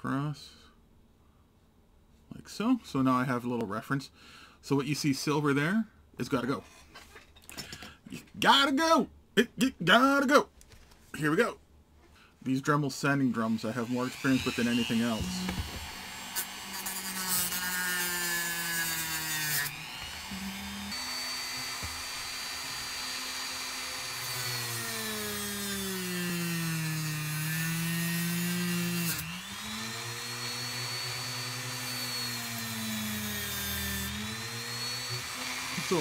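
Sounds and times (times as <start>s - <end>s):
rotary tool motor whine: 14.1s - 26.0s, 27.7s - 36.0s.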